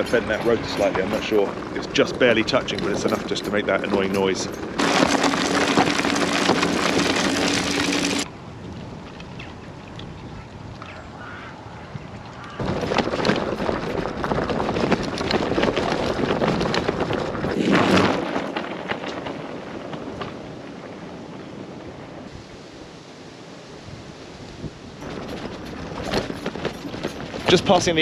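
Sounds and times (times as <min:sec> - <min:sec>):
wind buffeting microphone: 0:00.0 - 0:04.9, 0:06.0 - 0:22.6, 0:23.8 - 0:28.0
bike tyres rolling on gravel: 0:00.0 - 0:09.2, 0:12.1 - 0:22.5, 0:24.5 - 0:28.0.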